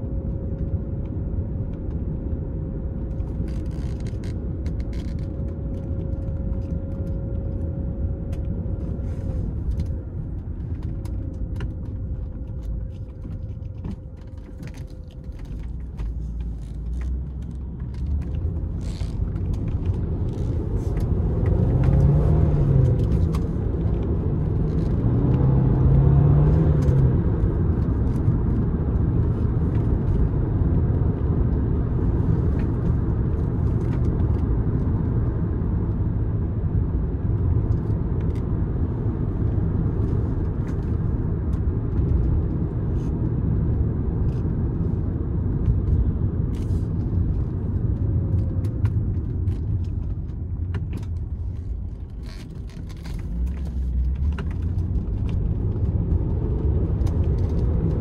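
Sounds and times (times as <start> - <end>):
road and tyre noise: 0.0 - 58.0
car engine accelerating: 15.3 - 35.2.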